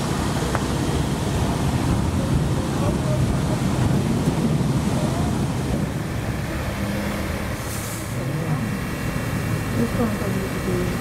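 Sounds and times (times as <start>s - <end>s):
vehicle engine and road rumble: 0.0s - 11.0s.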